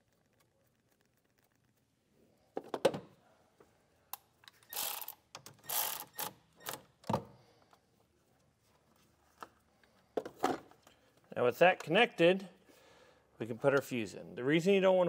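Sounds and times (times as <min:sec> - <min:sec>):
cordless ratchet running: 0:04.7 - 0:06.3.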